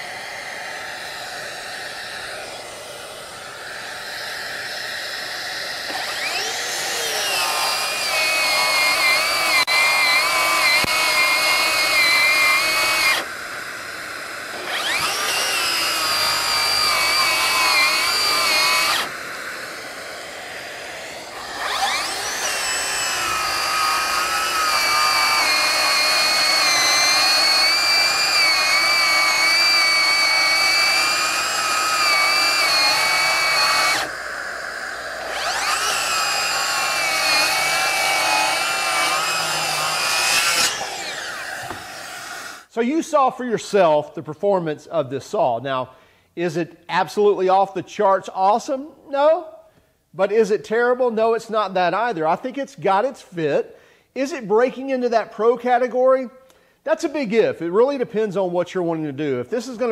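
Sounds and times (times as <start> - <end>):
circular saw cutting wood: 0.0 - 43.2.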